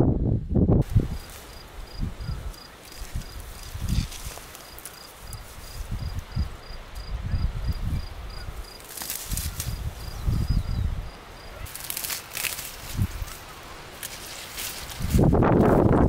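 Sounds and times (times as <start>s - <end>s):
insect chirping: 0.9s - 14.3s
rustling: 2.5s - 6.3s, 8.7s - 10.2s, 11.6s - 16.0s.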